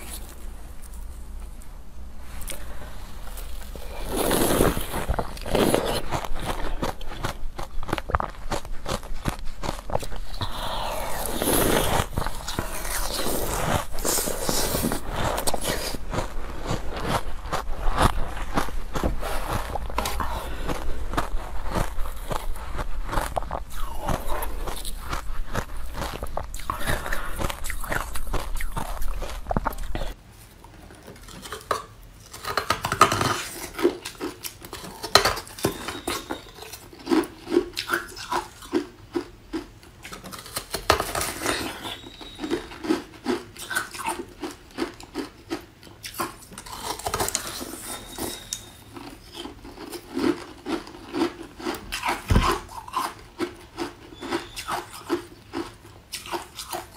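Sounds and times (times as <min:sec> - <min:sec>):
crunchy chewing: 0:00.0 - 0:01.7, 0:02.4 - 0:56.9.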